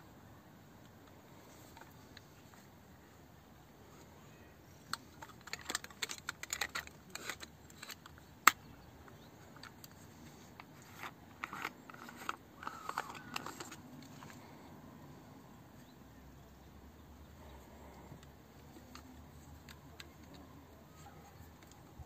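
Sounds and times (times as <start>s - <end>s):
camera lens clicks and scraping: 4.8s - 14.6s.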